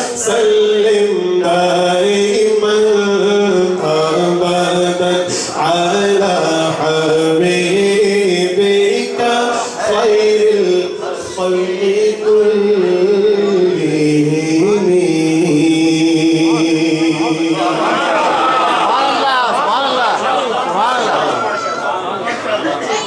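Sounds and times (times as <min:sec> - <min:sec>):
man singing into a microphone: 0:00.0 - 0:17.8.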